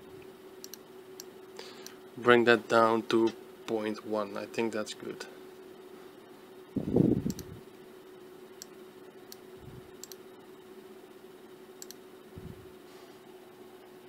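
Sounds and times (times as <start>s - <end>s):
faint steady hum: 0.0s - 14.0s
computer mouse clicking: 7.2s - 7.5s, 10.0s - 10.2s, 11.8s - 12.0s.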